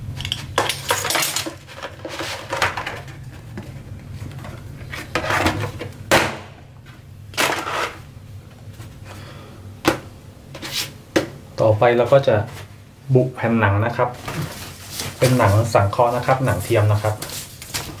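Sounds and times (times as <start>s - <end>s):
steady low hum: 0.0s - 18.0s
plastic sheet handled: 13.9s - 18.0s.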